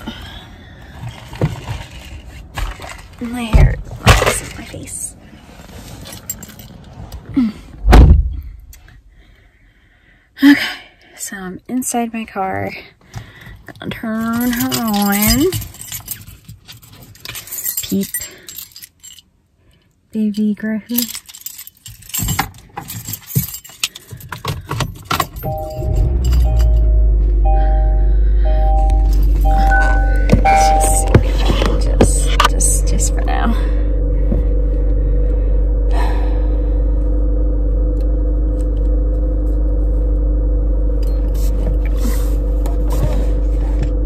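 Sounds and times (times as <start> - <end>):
car engine rumbling: 0.0 - 9.8, 20.9 - 44.0
car keys jangling: 5.9 - 7.0, 14.1 - 19.4, 20.9 - 27.2, 28.5 - 33.2
car door slamming: 7.8 - 8.5
two-note dashboard warning chime: 25.4 - 32.0.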